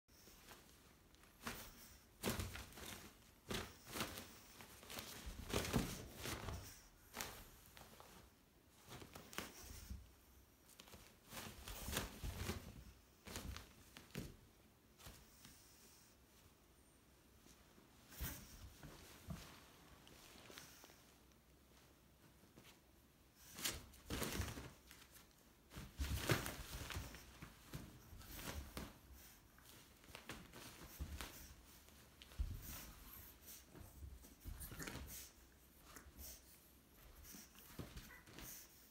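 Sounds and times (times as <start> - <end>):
fabric tunnel rustling and crinkling: 0.1 - 9.8, 23.4 - 33.4
paws scrabbling on carpet: 0.1 - 16.1, 17.4 - 38.9
fabric tunnel thumps and rustling: 25.7 - 32.8.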